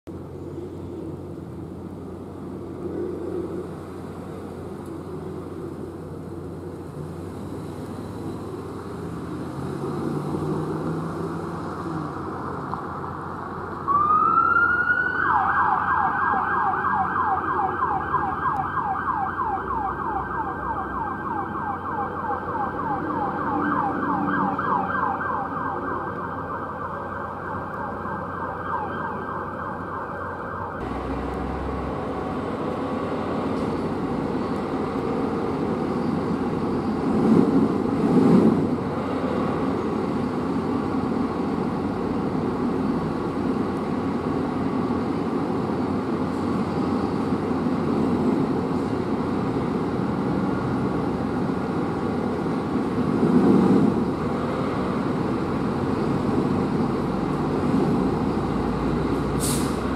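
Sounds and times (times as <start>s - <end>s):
electronic siren yelping: 13.9s - 30.8s
fire engine idling: 59.4s - 59.8s.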